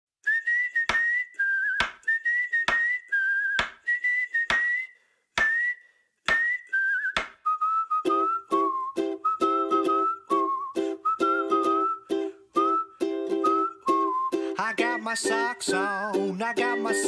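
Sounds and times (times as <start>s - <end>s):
whistled tune: 0.2s - 17.0s
plucked ukulele chords: 8.0s - 17.0s.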